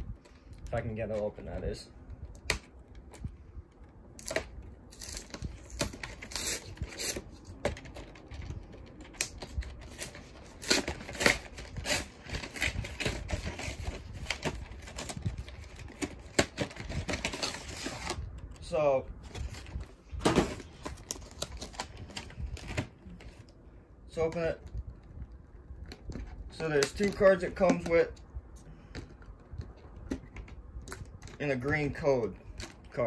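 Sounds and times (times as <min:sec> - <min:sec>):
cardboard packaging tearing: 0:04.2 - 0:08.0, 0:09.2 - 0:23.4.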